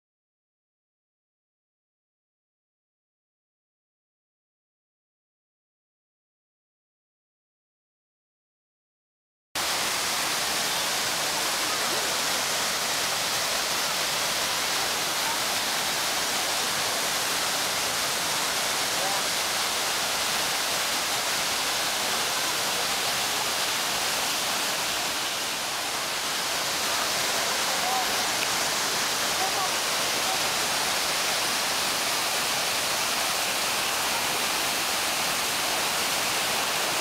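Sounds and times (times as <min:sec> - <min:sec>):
waterfall rushing: 0:09.6 - 0:37.0.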